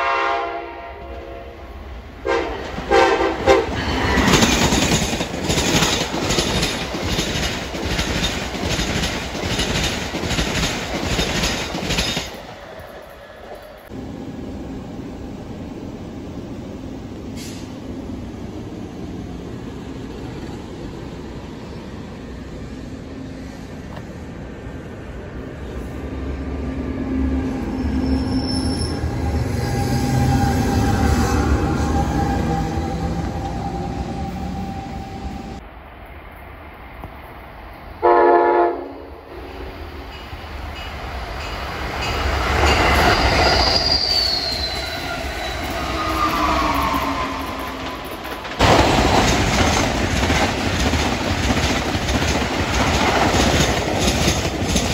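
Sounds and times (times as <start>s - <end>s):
train wheels rumbling on rails: 1.0s - 35.8s, 38.8s - 54.9s
high-pitched wheel squeal: 27.6s - 35.2s, 42.7s - 48.1s
high squealing tone: 42.8s - 48.2s.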